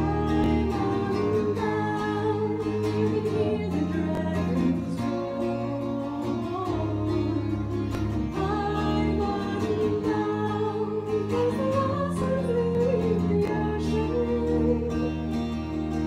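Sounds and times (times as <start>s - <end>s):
strummed bouzouki: 0.0s - 16.0s
woman singing folk melody: 0.0s - 16.0s.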